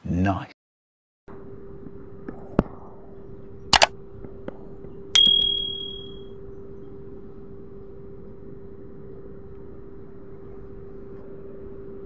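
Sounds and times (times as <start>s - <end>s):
steady low hum: 1.3s - 12.0s
sharp click: 3.7s - 3.9s
bright bell ding: 5.2s - 6.2s.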